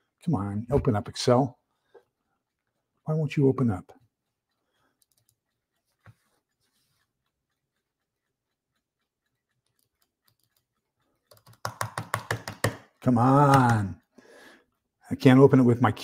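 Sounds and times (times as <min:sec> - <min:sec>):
mouse and keyboard clicks: 0:11.2 - 0:13.7.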